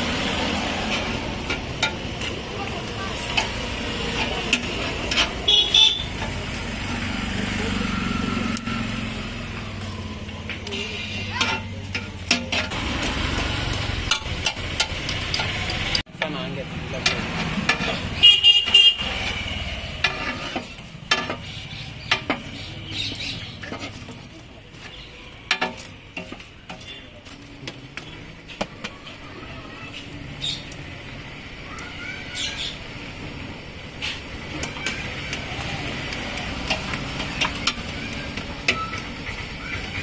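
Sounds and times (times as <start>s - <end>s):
street traffic: 0.0s - 40.0s
vehicle horn tooting: 5.4s - 6.2s, 18.2s - 19.7s
sharp clicks and knocks: 9.8s - 18.7s, 19.9s - 29.2s, 34.0s - 40.0s.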